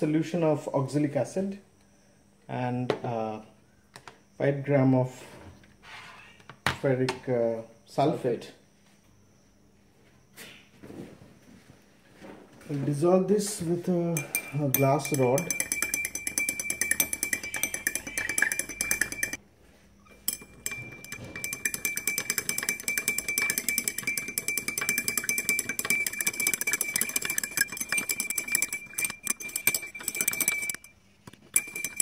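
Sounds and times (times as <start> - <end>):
glass rod clinking in beaker: 14.0 - 19.4, 20.2 - 32.0.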